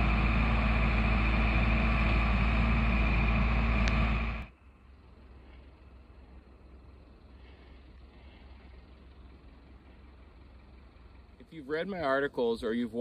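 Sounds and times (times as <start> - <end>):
diesel engine running under load: 0.0 - 13.0.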